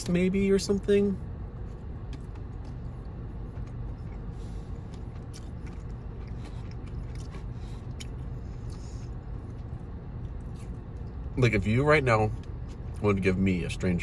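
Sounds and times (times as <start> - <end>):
car interior hum: 0.0 - 14.0
person chewing: 2.2 - 11.3.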